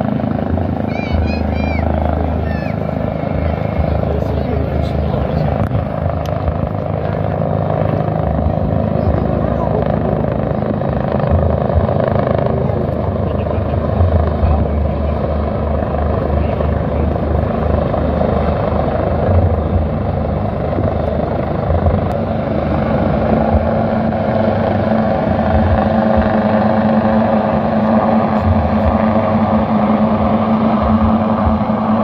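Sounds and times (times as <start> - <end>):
helicopter rotor and turbine: 0.0 - 32.0
steady hum: 0.0 - 32.0.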